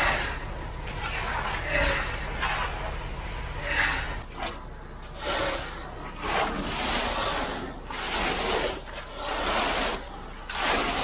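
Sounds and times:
tools scraping wet concrete: 0:05.2 - 0:11.0.

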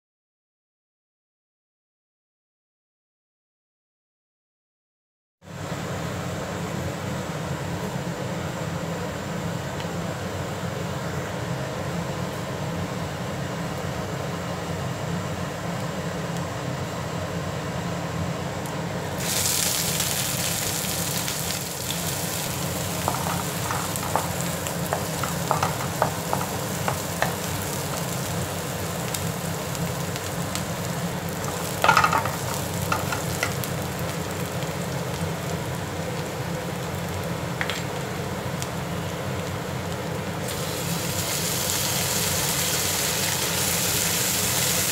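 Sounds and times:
onions sizzling in oil: 0:19.1 - 0:44.9.

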